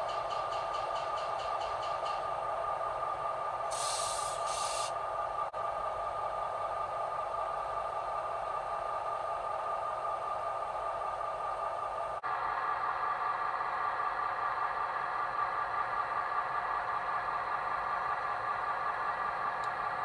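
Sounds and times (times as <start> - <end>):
model locomotive mechanical drone: 0.0 - 20.0
short hisses: 3.7 - 4.9.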